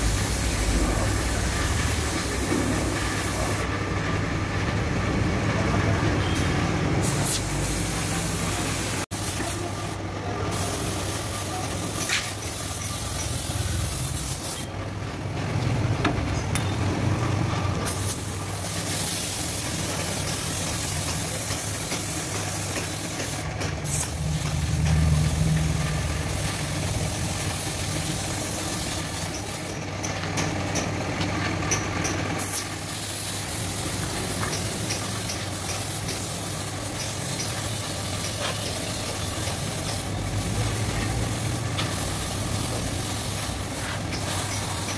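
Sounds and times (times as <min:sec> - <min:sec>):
paint spray gun hissing: 0:00.0 - 0:03.7, 0:07.0 - 0:14.7, 0:17.8 - 0:24.6, 0:25.2 - 0:29.7, 0:32.4 - 0:44.9.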